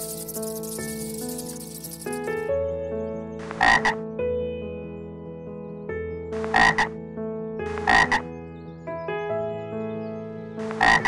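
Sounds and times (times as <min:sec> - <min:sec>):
soft background music: 0:00.0 - 0:11.0
frog double croaking: 0:03.6 - 0:04.0, 0:06.4 - 0:06.9, 0:07.8 - 0:08.2, 0:10.8 - 0:11.0.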